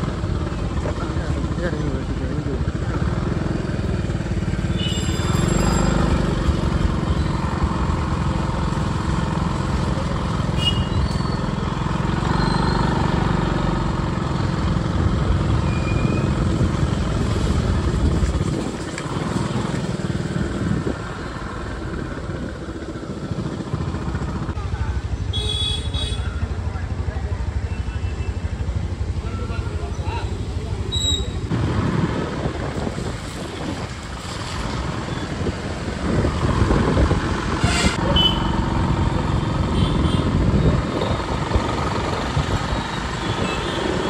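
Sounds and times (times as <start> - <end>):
motorbike on wet road: 0.0 - 44.0
wind rumbling on microphone: 16.2 - 24.6, 31.5 - 38.3, 39.1 - 44.0.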